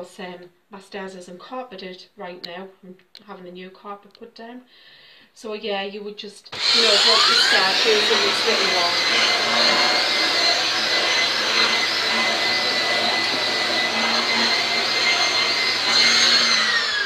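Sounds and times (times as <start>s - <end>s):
vacuum cleaner running: 6.5s - 17.0s.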